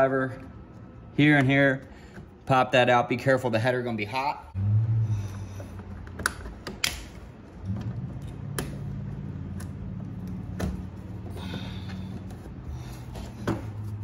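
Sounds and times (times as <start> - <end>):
steady low hum: 3.5 - 14.0.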